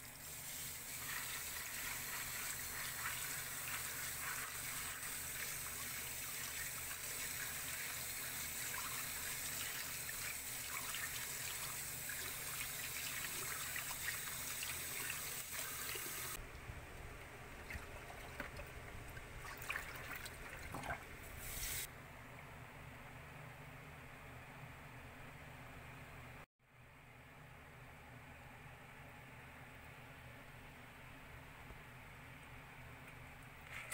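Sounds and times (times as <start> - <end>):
tap water running into colander: 0.1 - 16.4, 17.5 - 21.9.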